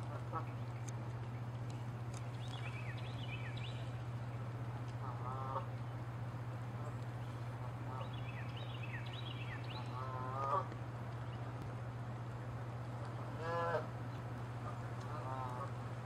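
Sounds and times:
steady low hum: 0:00.0 - 0:16.0
geese honking: 0:04.9 - 0:05.8, 0:07.6 - 0:10.8, 0:13.2 - 0:14.0, 0:14.6 - 0:15.9.

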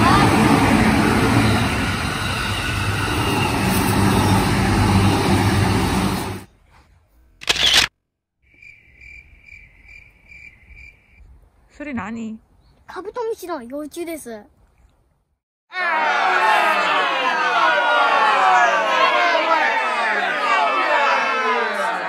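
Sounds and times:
electric train rushing past: 0:00.0 - 0:06.5.

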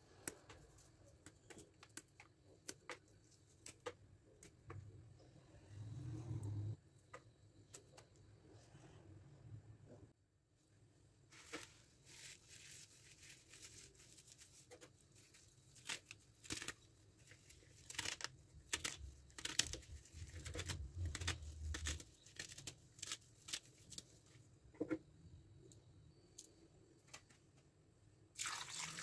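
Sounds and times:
leaves rustling: 0:11.3 - 0:14.6.

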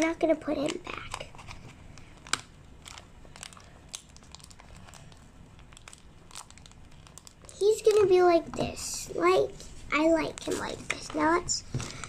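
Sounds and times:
slime crackling: 0:02.0 - 0:11.4.

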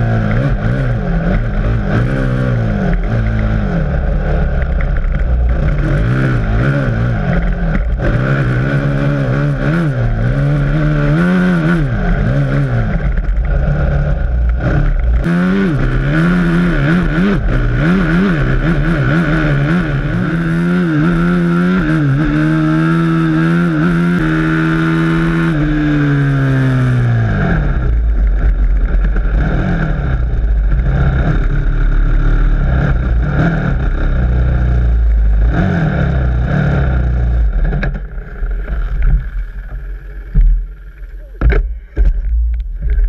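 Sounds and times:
dirt bike engine: 0:00.0 - 0:43.0
wind rumble on microphone: 0:37.0 - 0:43.0
bumps and knocks: 0:37.6 - 0:43.0.

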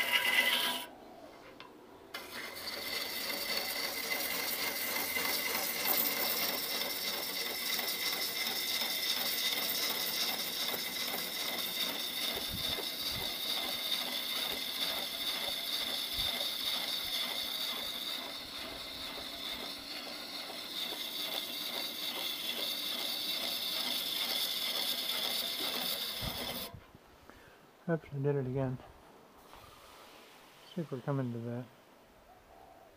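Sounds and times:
high whine of lathe: 0:00.0 - 0:00.9, 0:02.2 - 0:26.8
lathe tool scraping wood: 0:00.0 - 0:00.9, 0:02.1 - 0:26.8.

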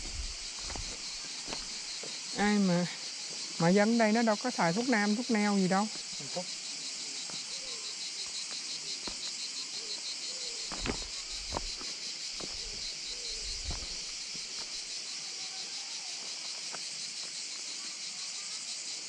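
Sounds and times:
footsteps on pebbles: 0:00.0 - 0:02.2, 0:10.6 - 0:14.8
high-pitched insect chorus: 0:00.0 - 0:19.0.

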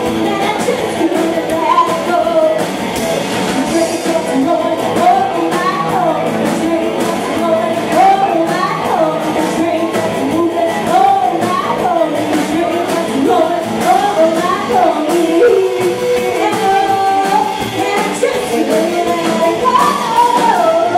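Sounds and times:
woman singing: 0:00.0 - 0:02.8, 0:03.5 - 0:20.9
drums: 0:00.0 - 0:20.9
electric guitar: 0:00.0 - 0:20.9
upright bass: 0:00.0 - 0:20.9.

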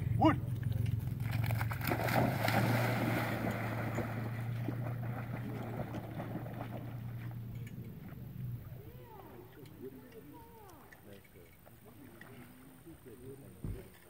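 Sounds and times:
steady low hum: 0:00.0 - 0:13.9
water lapping from paddling: 0:00.4 - 0:14.0
dog splashing in water: 0:01.0 - 0:07.5.

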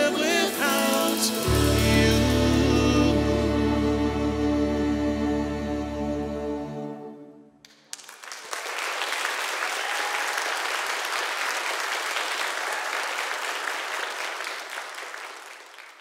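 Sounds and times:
congregation applauding: 0:07.6 - 0:16.0.

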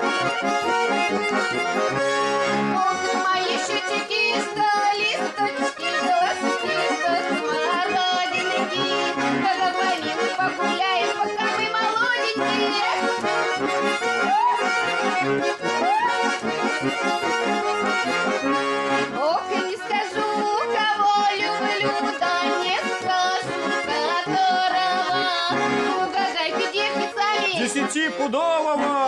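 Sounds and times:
accordions playing folk dance tune: 0:00.0 - 0:29.0
woman singing: 0:02.6 - 0:13.1, 0:19.2 - 0:27.7.

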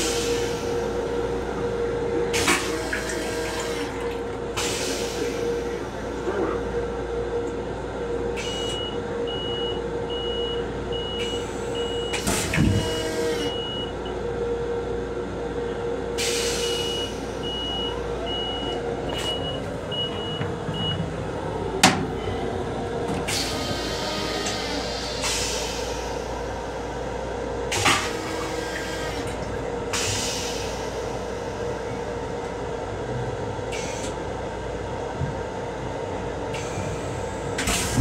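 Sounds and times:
train hum: 0:00.0 - 0:08.4, 0:09.0 - 0:38.0
toilet flushing: 0:02.2 - 0:06.4, 0:27.7 - 0:31.4.

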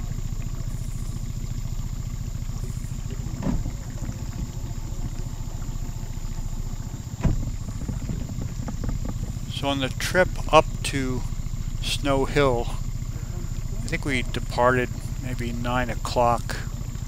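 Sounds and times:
outboard motor running: 0:00.0 - 0:17.0
knocks: 0:07.1 - 0:09.5.

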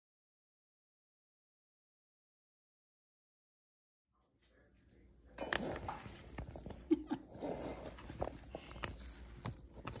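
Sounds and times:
vegetables squishing in steel bowl: 0:05.4 - 0:10.0.

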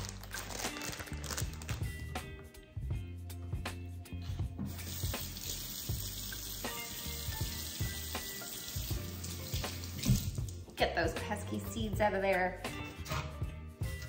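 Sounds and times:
tap running into metal sink: 0:08.7 - 0:10.5.

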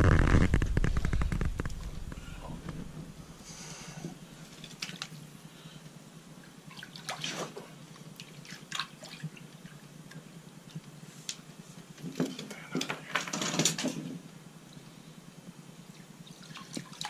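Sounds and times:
water sloshing and dripping: 0:06.4 - 0:10.8, 0:15.9 - 0:17.0
water splashes: 0:06.7 - 0:09.8.

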